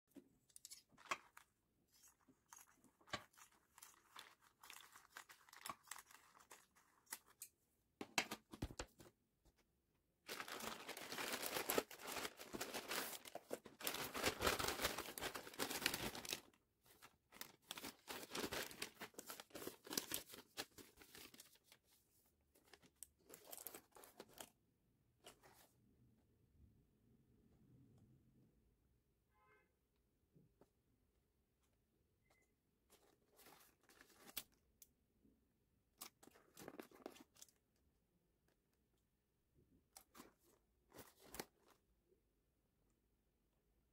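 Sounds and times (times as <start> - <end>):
packaging tearing and crinkling: 10.3 - 16.6, 17.3 - 21.5
packaging rustling and clicking: 10.3 - 21.5.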